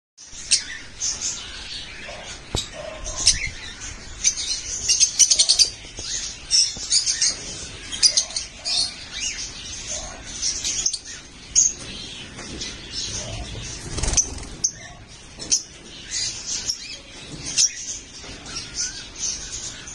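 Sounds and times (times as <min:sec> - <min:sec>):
lovebirds chirping: 0:00.2 - 0:19.9.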